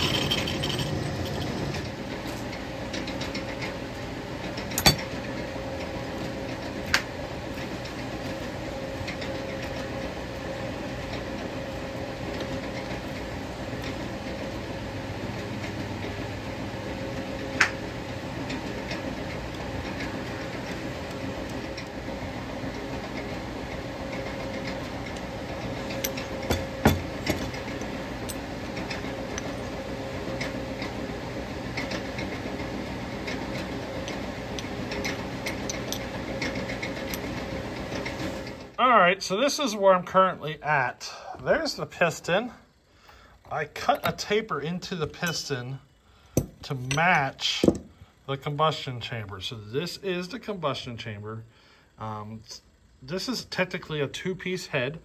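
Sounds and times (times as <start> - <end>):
lathe humming: 0.0 - 2.9.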